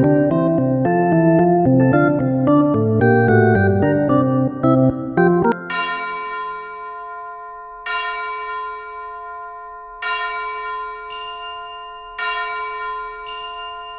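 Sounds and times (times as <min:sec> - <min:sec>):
bell-like chimes: 0:05.5 - 0:13.9.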